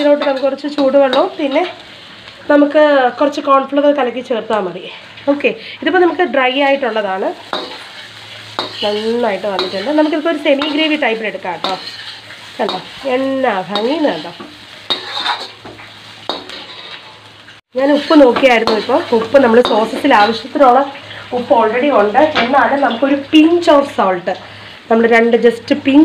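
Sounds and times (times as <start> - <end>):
metal spatula scraping wok: 0.0 - 2.1, 6.8 - 22.9
food sizzling: 0.0 - 26.0.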